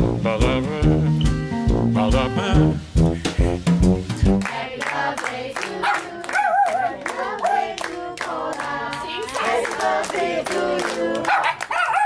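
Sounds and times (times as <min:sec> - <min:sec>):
people singing together: 0:04.2 - 0:11.4
people clapping: 0:04.3 - 0:12.0.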